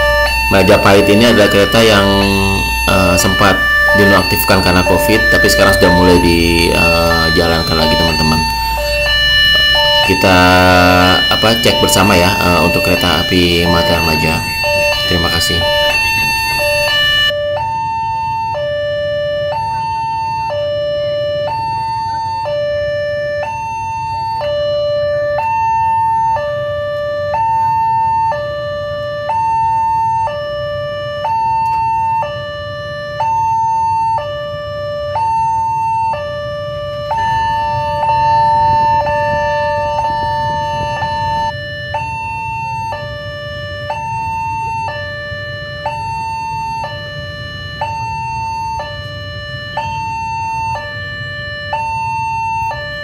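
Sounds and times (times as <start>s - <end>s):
two-tone level crossing alarm: 0.0s - 53.0s.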